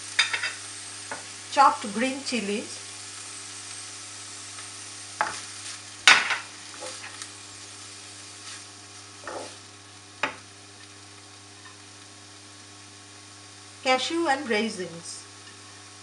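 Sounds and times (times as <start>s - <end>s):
light sizzling of hot oil: 0.0s - 16.0s
wooden spoon scraping a frying pan: 5.2s - 7.3s, 8.3s - 9.7s.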